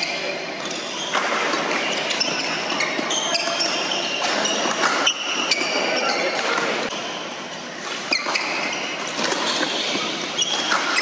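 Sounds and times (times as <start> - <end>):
din of busy hall: 0.0 - 11.0
shoes squeaking on wooden floor: 0.0 - 11.0
racket striking shuttlecock: 7.9 - 11.0.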